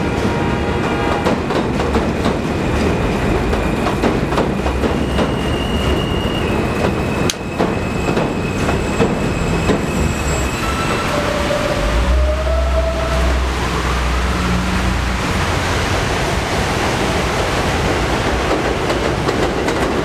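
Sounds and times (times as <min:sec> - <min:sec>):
train rumble: 0:00.0 - 0:20.0
wheels clacking over rail joints: 0:00.9 - 0:06.1, 0:17.8 - 0:20.0.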